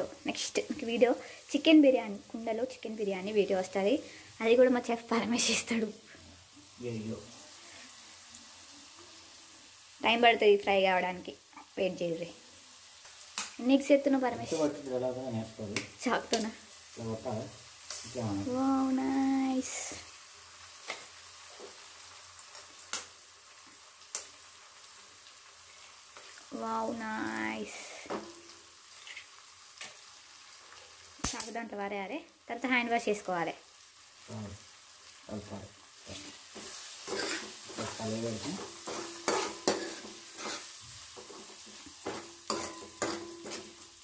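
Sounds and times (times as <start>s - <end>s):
eggs sizzling in oil: 0.0s - 44.0s
metal ladle scraping pan: 36.2s - 37.9s, 38.5s - 43.8s.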